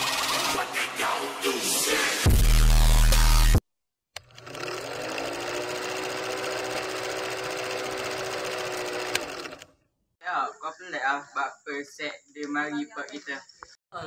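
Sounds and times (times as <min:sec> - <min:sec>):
film projector running: 0:04.2 - 0:09.8.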